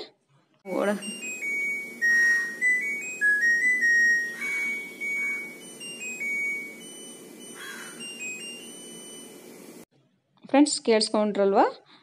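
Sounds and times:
washing machine electronic beep tune: 0.7 - 9.8.

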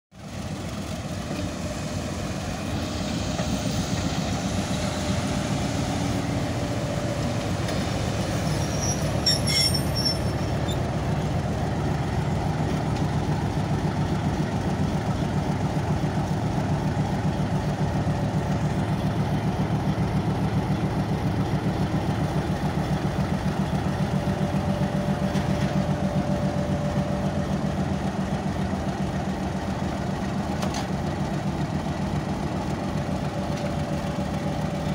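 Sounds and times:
diesel locomotive rolling past: 0.1 - 34.9
brief high squeal: 8.4 - 10.8.

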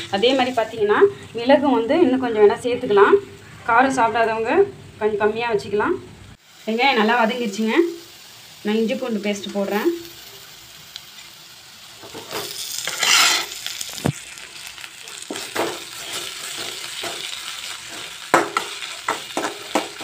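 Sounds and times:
food sizzling in hot oil: 0.0 - 20.0
spoon scraping pan: 12.0 - 13.6
spoon knocking on pan: 16.5 - 20.0.

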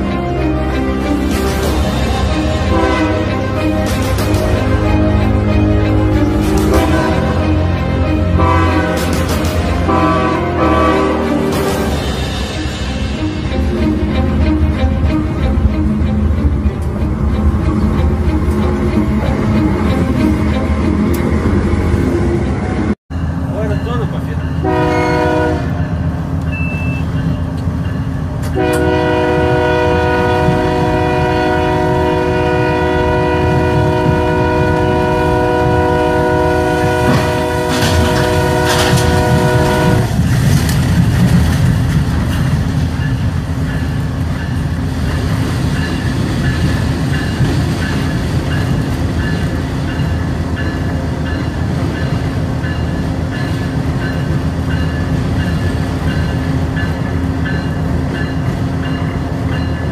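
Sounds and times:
train rumbling on rails: 0.0 - 59.9
locomotive horn blasts: 2.1 - 11.5, 24.6 - 25.8, 28.5 - 40.2.

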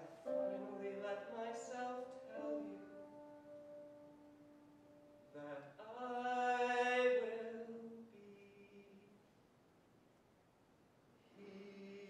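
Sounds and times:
man singing a ballad: 0.0 - 3.4, 5.4 - 9.0, 11.4 - 12.0.

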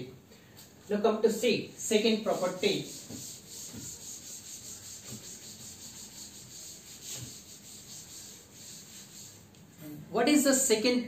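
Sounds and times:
eraser scrubbing blackboard: 1.9 - 9.6.

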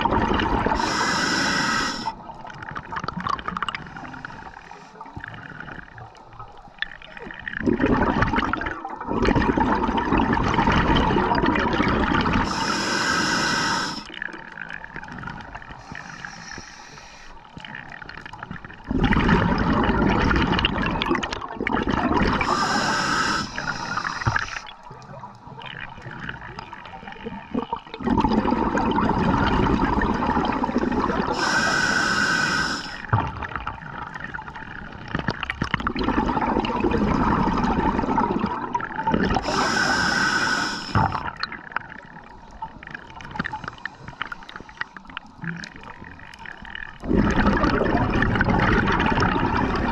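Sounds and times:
diver breathing through regulator: 0.6 - 2.2, 3.7 - 5.2, 12.4 - 14.2, 15.8 - 17.6, 22.3 - 24.7, 31.1 - 33.1, 39.4 - 41.4.

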